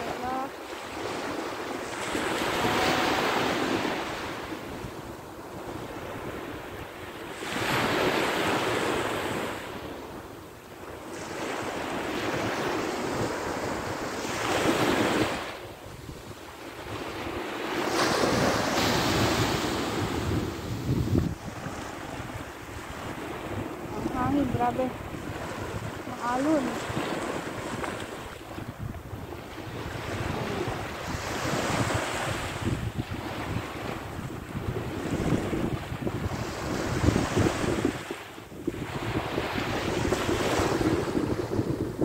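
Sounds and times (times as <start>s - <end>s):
ocean waves crashing on beach: 0.0s - 42.0s.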